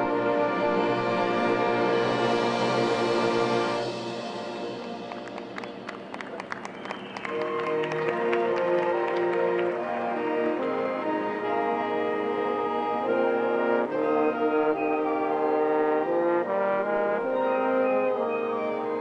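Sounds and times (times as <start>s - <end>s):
brass band playing sustained chords: 0.0s - 19.0s.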